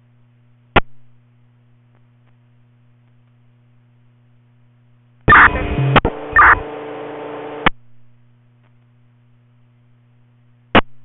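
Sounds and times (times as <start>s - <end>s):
steady low hum: 0.0s - 11.0s
hissy radio transmission: 5.3s - 7.7s.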